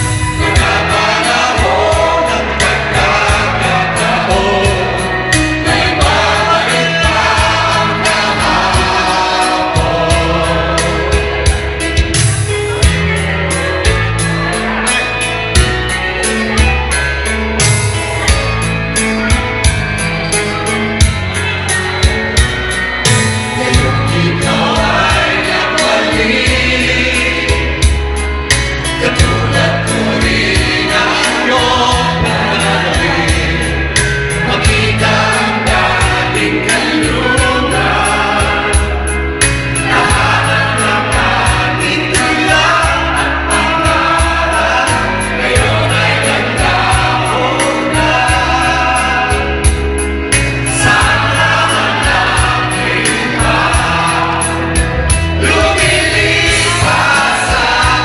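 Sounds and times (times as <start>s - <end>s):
group of people singing: 0.0s - 58.0s
karaoke backing track with drum beat: 0.0s - 58.0s.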